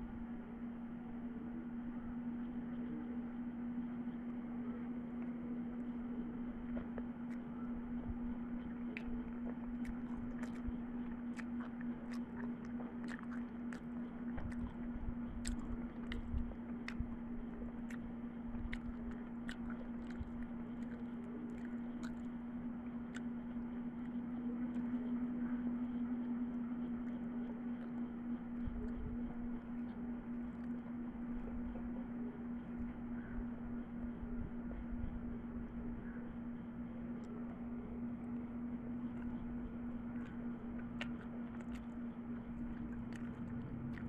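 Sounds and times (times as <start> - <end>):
steady low hum: 0.0 - 44.0
person chewing food: 6.6 - 31.8, 37.2 - 44.0
wet mouth clicks and smacks: 8.6 - 22.4, 23.1 - 24.9, 40.1 - 44.0.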